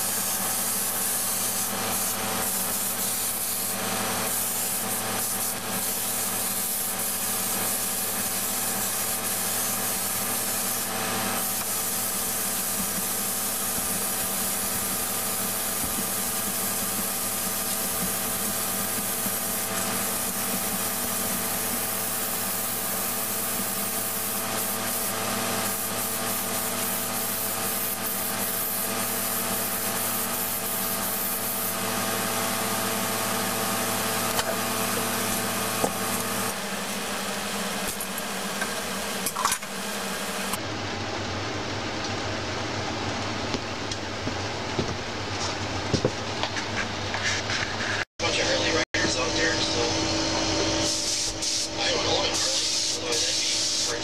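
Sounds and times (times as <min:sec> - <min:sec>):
spray gun hissing: 0:00.0 - 0:37.8, 0:50.8 - 0:54.0
mechanical hum: 0:00.0 - 0:54.0.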